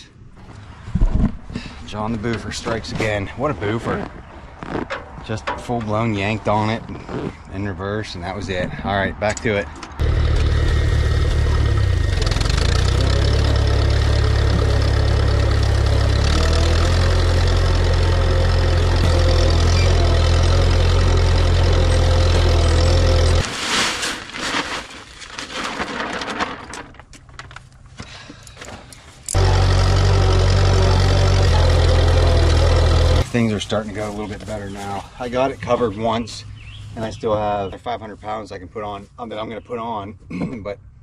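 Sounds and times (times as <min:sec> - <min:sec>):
tractor engine running: 0:09.9 - 0:23.4, 0:29.3 - 0:34.5.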